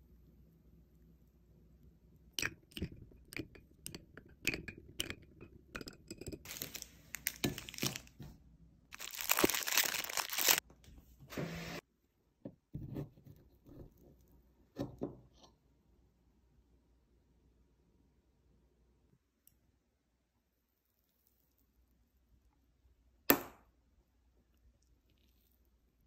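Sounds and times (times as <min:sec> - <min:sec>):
plastic wrapper crinkling: 0:06.4 - 0:08.2, 0:08.9 - 0:10.6.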